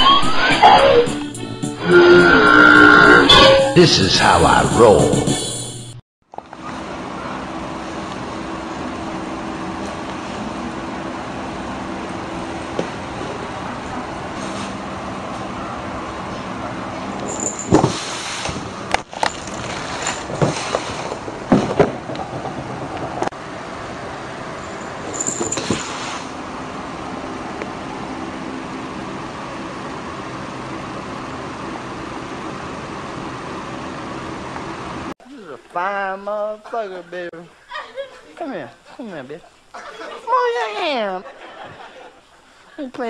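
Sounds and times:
low hum and hiss: 35.2 - 43.0.

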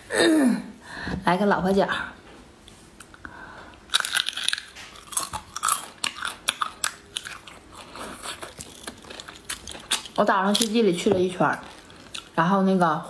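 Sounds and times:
crunching and chewing shellfish: 3.0 - 12.4.

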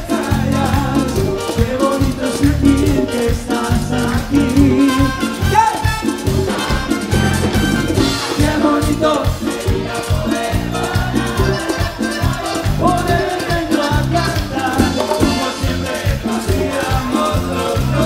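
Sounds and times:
latin dance band playing: 0.0 - 18.0
steady bass pulse: 0.3 - 18.0.

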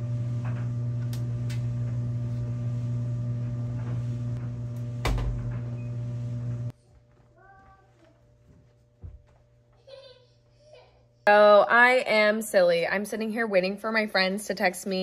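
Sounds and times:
washing machine humming: 0.0 - 6.8.

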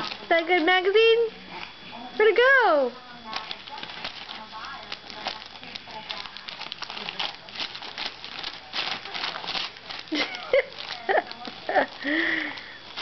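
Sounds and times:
magazine pages rustling: 0.0 - 0.7, 3.3 - 13.0.

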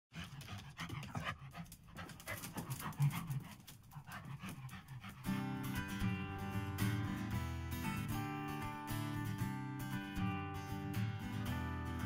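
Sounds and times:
dog panting: 0.1 - 6.1
acoustic guitar music: 5.2 - 12.0.

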